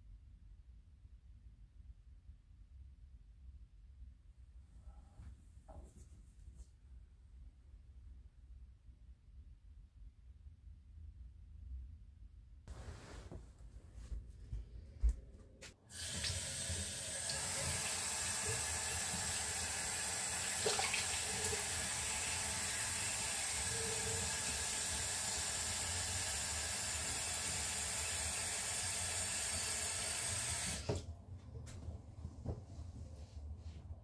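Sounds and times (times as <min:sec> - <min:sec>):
tap running into basin: 0:16.0 - 0:22.0.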